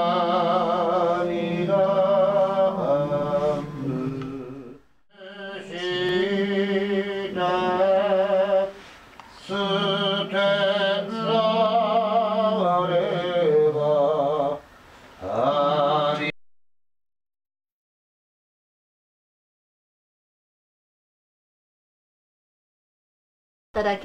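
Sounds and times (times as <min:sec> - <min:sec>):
buddhist chanting: 0:00.0 - 0:08.8.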